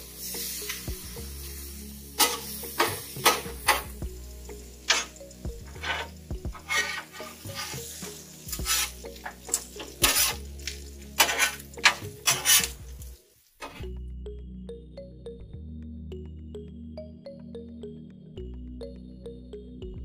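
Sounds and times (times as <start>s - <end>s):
food sizzling in grease: 0.0s - 13.8s
background music: 0.0s - 20.0s
metal spatula scraping griddle: 2.2s - 3.9s, 5.7s - 12.8s, 13.6s - 13.8s.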